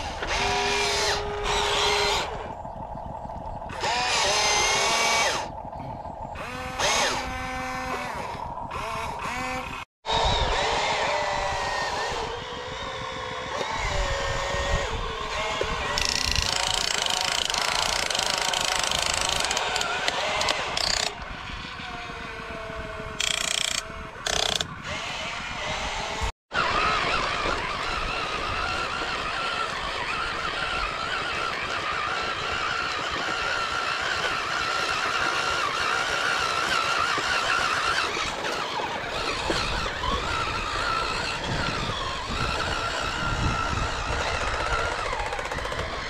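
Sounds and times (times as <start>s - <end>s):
small electric motor whining: 0.0s - 46.0s.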